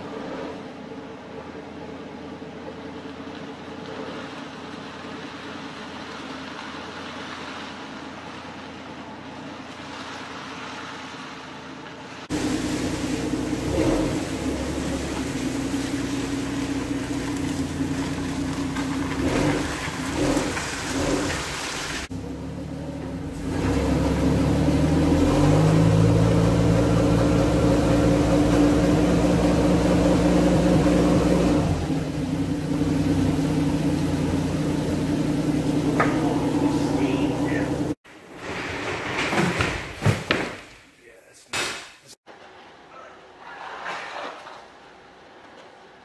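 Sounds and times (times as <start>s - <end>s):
heavy equipment engine running: 0.0s - 38.0s.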